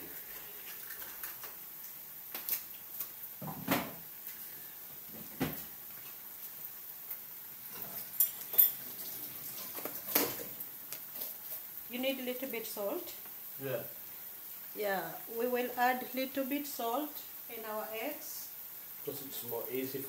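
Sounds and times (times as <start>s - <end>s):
dishes and cutlery clinking: 7.7s - 10.5s.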